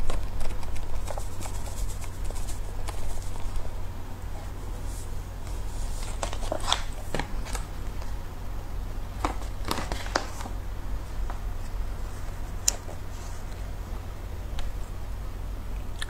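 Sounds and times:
steady low hum: 0:00.0 - 0:16.0
foil packet crackling: 0:09.1 - 0:10.6.

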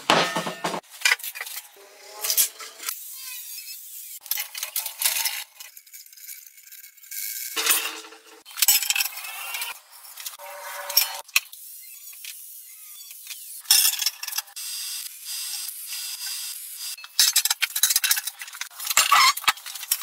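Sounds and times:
angle grinder cutting steel: 0:07.5 - 0:17.0.

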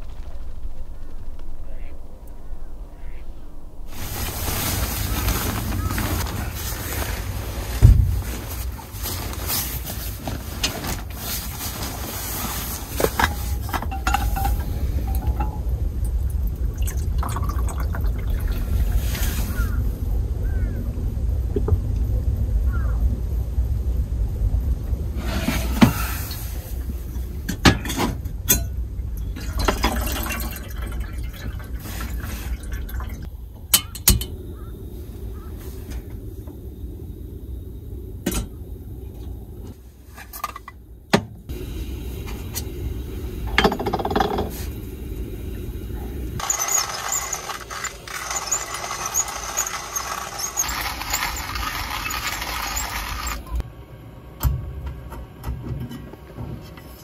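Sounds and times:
steady rushing hiss: 0:00.0 - 0:16.8, 0:33.2 - 0:40.5, 0:41.5 - 0:53.7
low rumble: 0:00.0 - 0:27.6
cups and cookware clinking: 0:12.3 - 0:15.7, 0:43.5 - 0:44.7.

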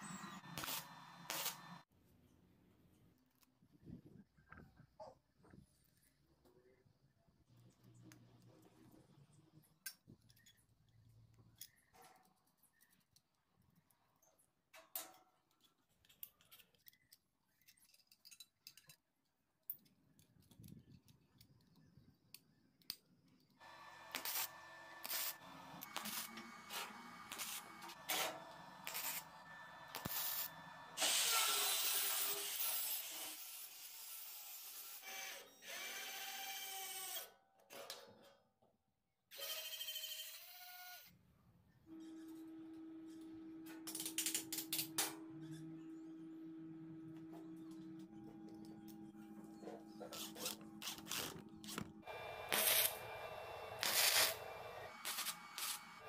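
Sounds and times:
welding crackling and hissing: 0:00.3 - 0:01.8, 0:23.8 - 0:33.1, 0:50.1 - 0:56.0
clicks of small steel parts: 0:14.8 - 0:24.4.

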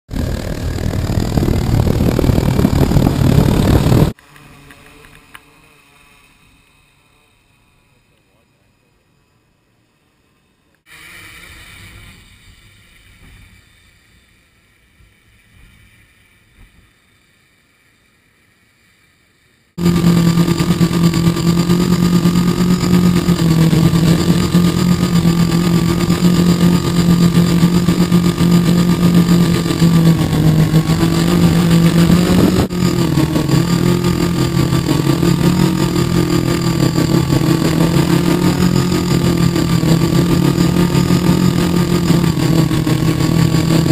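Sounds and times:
quadcopter propellers buzzing: 0:00.1 - 0:09.0, 0:19.8 - 0:43.9.

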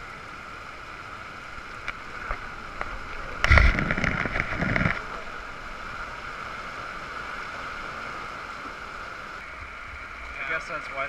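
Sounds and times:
heavy rain on tent: 0:00.0 - 0:11.0
knocks and rustling: 0:02.2 - 0:05.2.

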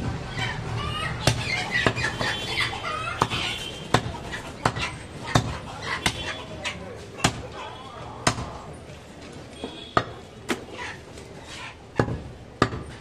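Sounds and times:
chickens clucking: 0:00.1 - 0:07.8, 0:10.4 - 0:12.2
knife chopping meat on wood: 0:01.2 - 0:02.0, 0:03.2 - 0:06.3, 0:07.2 - 0:07.5, 0:08.2 - 0:08.5, 0:12.0 - 0:13.0.

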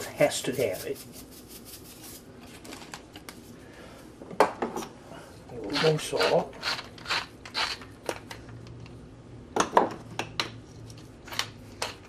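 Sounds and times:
salt shaker over metal bowl: 0:00.0 - 0:02.3.

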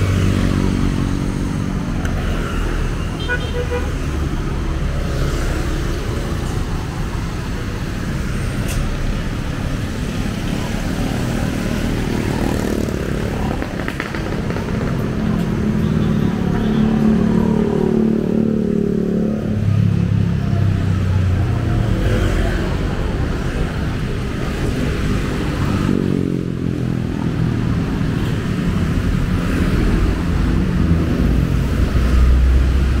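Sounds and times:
cars passing by: 0:00.0 - 0:33.0
motorcycles passing by: 0:00.0 - 0:33.0.

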